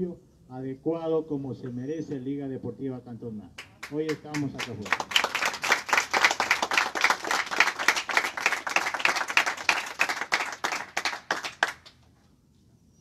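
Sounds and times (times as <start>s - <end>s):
people applauding: 3.6s - 12.0s.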